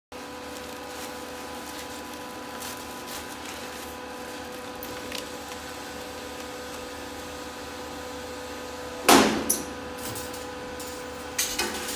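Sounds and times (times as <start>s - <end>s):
hydraulic power unit humming: 0.1s - 11.9s
plastic wrap rustling: 0.2s - 7.0s.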